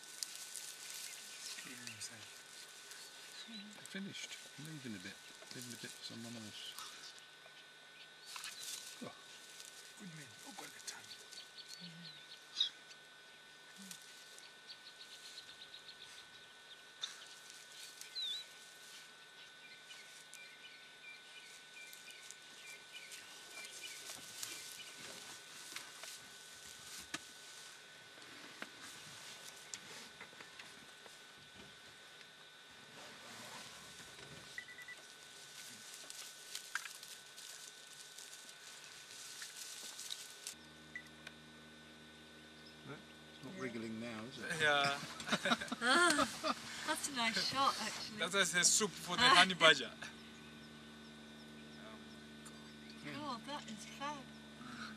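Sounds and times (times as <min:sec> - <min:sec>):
steady hiss: 0:00.0 - 0:07.2, 0:08.2 - 0:13.0, 0:13.6 - 0:40.6, 0:44.3 - 0:50.1
dry grass crackling and rustling: 0:00.0 - 0:07.4, 0:08.2 - 0:32.0, 0:32.7 - 0:40.6
faint low hum: 0:00.0 - 0:54.9
bird chirping: 0:11.1 - 0:12.8, 0:18.0 - 0:18.5.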